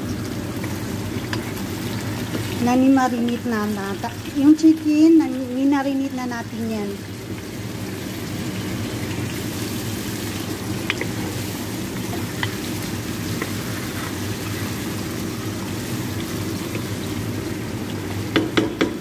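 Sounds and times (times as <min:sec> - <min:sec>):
chicken sizzling in hot oil: 0:00.0 - 0:19.0
wooden spatula taps: 0:18.3 - 0:19.0.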